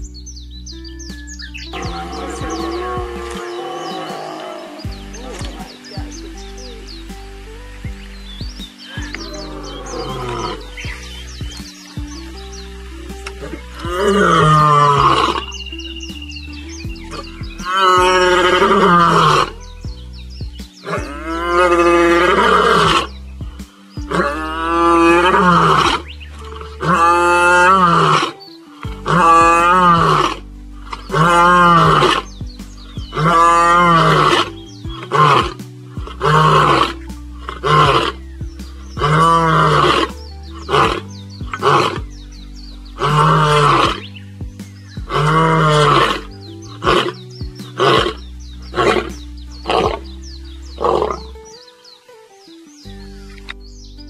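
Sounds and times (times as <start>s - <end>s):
low musical drone: 0.0s - 54.0s
animal calling with warbling pitch: 1.6s - 6.9s.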